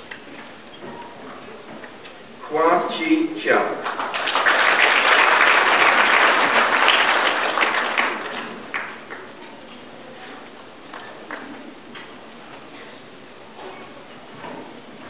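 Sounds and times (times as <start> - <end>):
audience applauding: 3.8 - 9.3.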